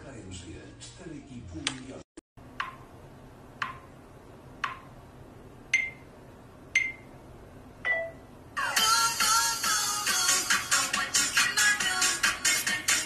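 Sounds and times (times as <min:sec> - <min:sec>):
countdown timer ticking: 0:02.5 - 0:03.0, 0:03.6 - 0:04.0, 0:04.6 - 0:05.0, 0:05.7 - 0:06.0, 0:06.7 - 0:07.1
music: 0:08.6 - 0:13.0.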